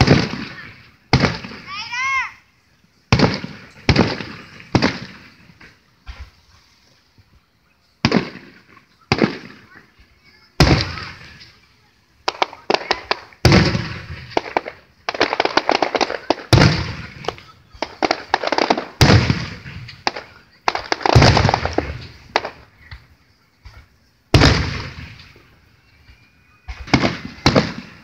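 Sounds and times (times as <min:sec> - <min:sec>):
firework shells booming: 0:00.0 - 0:01.7, 0:03.1 - 0:06.4, 0:08.0 - 0:09.8, 0:10.6 - 0:11.6, 0:12.2 - 0:23.0, 0:23.6 - 0:25.5, 0:26.6 - 0:28.0
firework crackling: 0:00.0 - 0:28.0.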